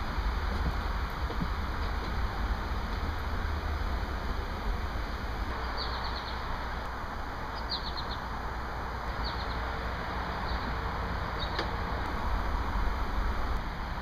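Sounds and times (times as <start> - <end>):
low background rumble: 0.0 - 14.0
small bird chirping: 5.6 - 6.5, 7.5 - 8.3, 9.2 - 9.6, 11.4 - 11.6.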